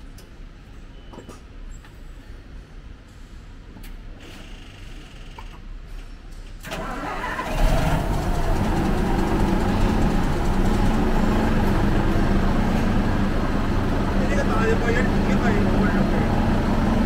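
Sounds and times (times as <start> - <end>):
diesel engine idling: 6.7 - 17.0.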